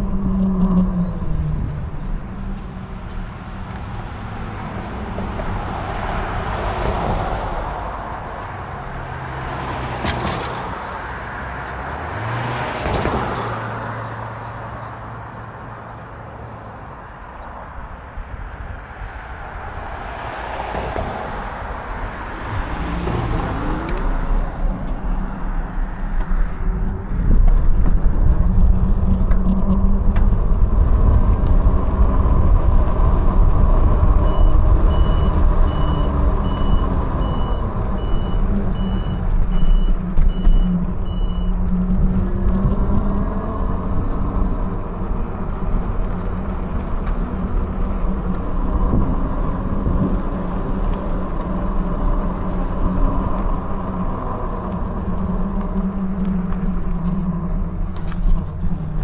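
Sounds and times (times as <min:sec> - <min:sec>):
wind rumble on microphone: 0:00.0 - 0:08.4, 0:20.8 - 0:59.0
cars passing: 0:00.0 - 0:59.0.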